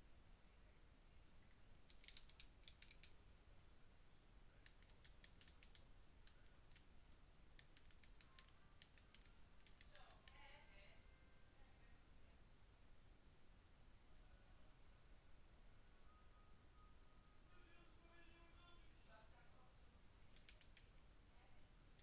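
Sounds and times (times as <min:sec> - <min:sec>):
typing on keyboard: 0:01.9 - 0:03.2, 0:04.6 - 0:06.9, 0:07.6 - 0:10.4, 0:20.3 - 0:20.9.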